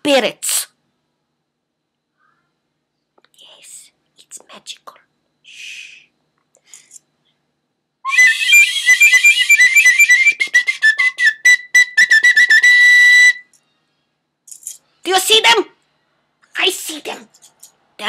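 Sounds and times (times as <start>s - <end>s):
shrill whistle-flute: 8.0s - 13.5s.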